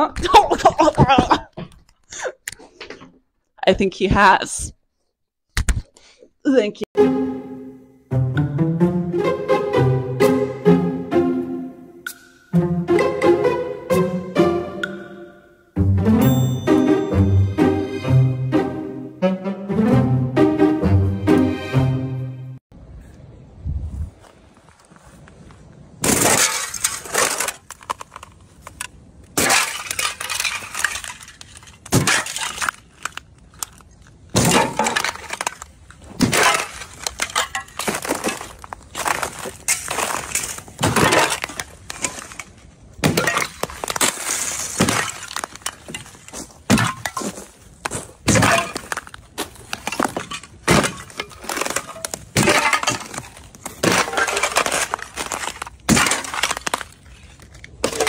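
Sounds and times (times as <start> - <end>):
sheet ice cracking underfoot: 26.0 - 58.0.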